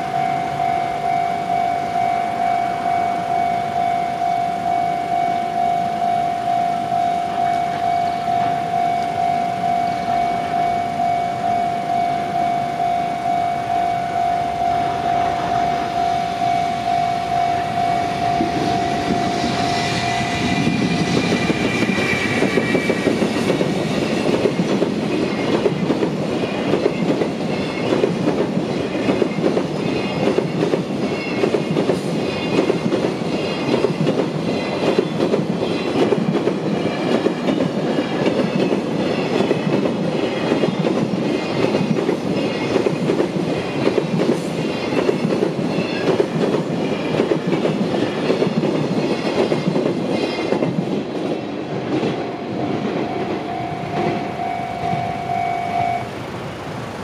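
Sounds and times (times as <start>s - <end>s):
level crossing warning bell: 0.0s - 23.2s, 51.3s - 56.2s
freight train wheels clattering: 18.0s - 55.1s.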